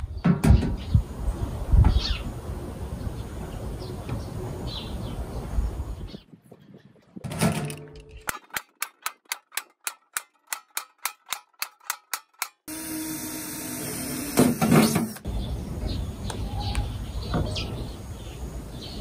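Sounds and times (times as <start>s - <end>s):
outdoor background noise: 0.0s - 19.0s
screwdriver driving screws into metal: 7.6s - 12.7s.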